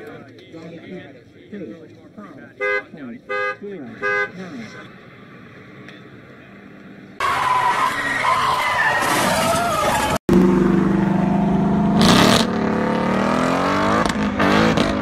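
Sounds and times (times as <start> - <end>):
car engine revving: 10.3 - 15.0.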